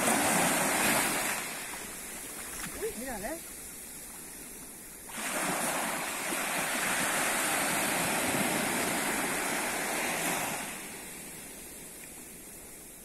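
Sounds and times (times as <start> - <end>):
wave hissing up shoreline: 0.0 - 13.0.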